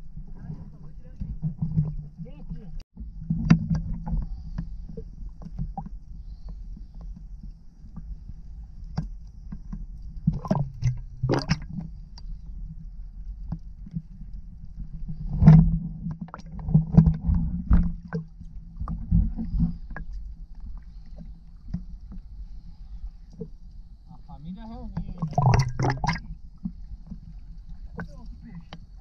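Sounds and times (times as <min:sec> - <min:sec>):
low underwater rumble: 0:00.0 - 0:29.0
muffled water sloshing: 0:00.0 - 0:29.0.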